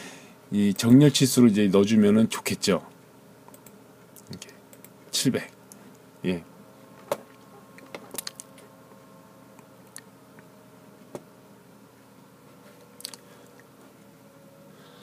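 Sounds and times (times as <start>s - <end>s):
faint steady hum: 0.0s - 15.0s
computer mouse clicks: 3.5s - 4.9s.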